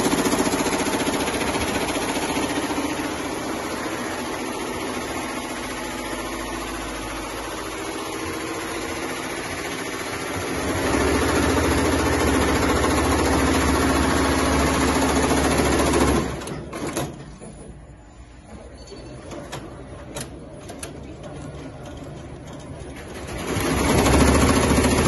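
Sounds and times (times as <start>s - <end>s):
embroidery machine stitching: 0.0s - 17.1s, 22.8s - 25.0s.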